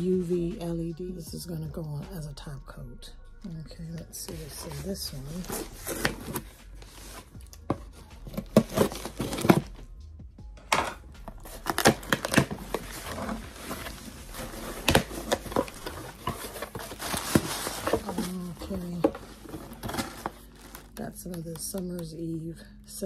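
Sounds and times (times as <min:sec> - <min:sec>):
cardboard flaps tearing open: 0:08.3 - 0:09.7, 0:11.4 - 0:18.4, 0:19.0 - 0:20.9
plastic wrap crinkling: 0:11.3 - 0:21.2.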